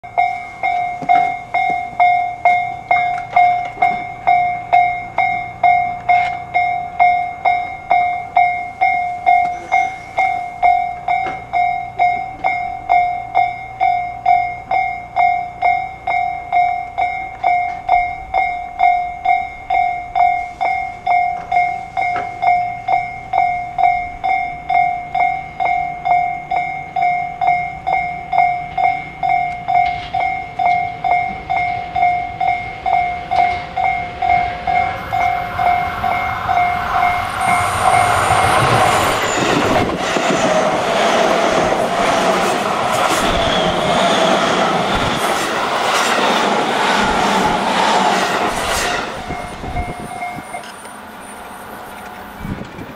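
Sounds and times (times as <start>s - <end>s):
level-crossing alarm two-tone ding: 0.0s - 40.4s, 49.2s - 50.7s
train rumble and wheel noise: 0.0s - 52.9s.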